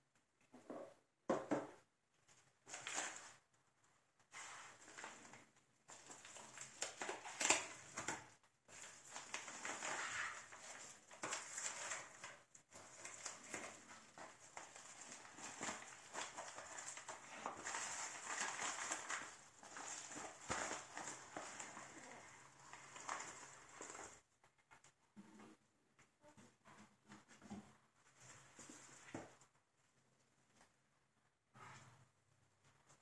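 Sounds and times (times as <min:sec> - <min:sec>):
packaging rustling: 0:04.4 - 0:24.2.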